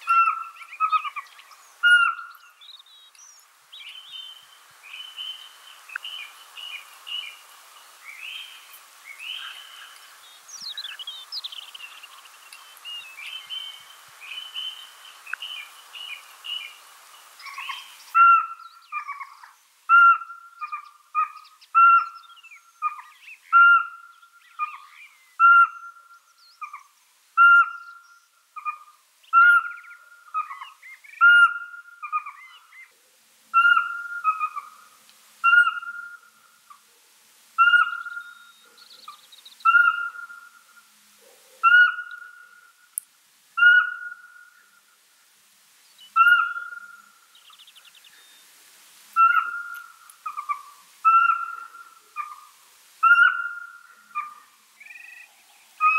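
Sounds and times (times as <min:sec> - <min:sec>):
owl whistling notes: 0:35.4 - 0:36.3, 0:37.6 - 0:38.6, 0:39.6 - 0:40.6, 0:41.6 - 0:42.6, 0:43.6 - 0:44.5, 0:46.2 - 0:47.0, 0:49.2 - 0:52.4, 0:53.0 - 0:55.9.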